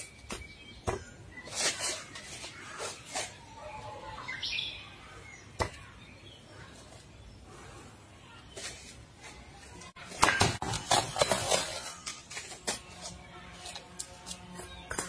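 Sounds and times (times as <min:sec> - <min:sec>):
bird chirp: 0:00.0 - 0:07.8.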